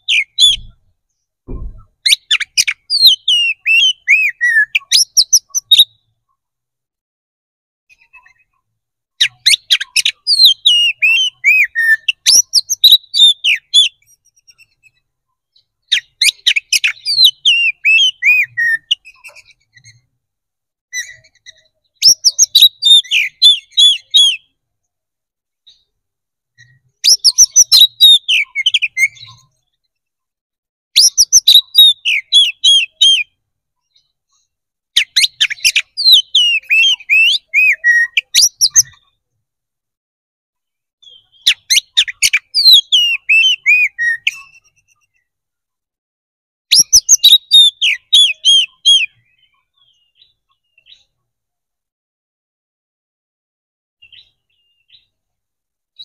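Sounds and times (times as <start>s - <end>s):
magpie-robin singing: 0.0s - 0.8s, 1.6s - 6.2s, 9.2s - 20.1s, 20.9s - 24.6s, 26.6s - 29.8s, 31.0s - 39.2s, 41.0s - 45.3s, 46.7s - 51.2s, 54.0s - 55.2s.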